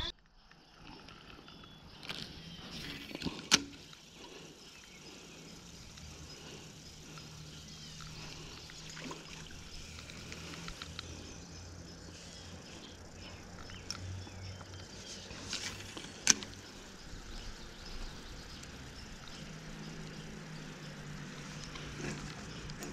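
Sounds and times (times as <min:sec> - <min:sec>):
low hum: 0:00.0 - 0:22.9
small ticks: 0:00.1 - 0:22.9
stream trickling: 0:00.4 - 0:22.9.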